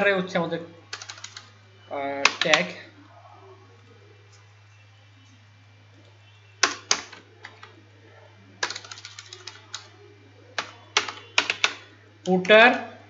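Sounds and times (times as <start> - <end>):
computer keyboard typing: 0.9 - 1.5, 2.2 - 2.7, 6.6 - 7.7, 8.6 - 9.9, 10.6 - 11.9.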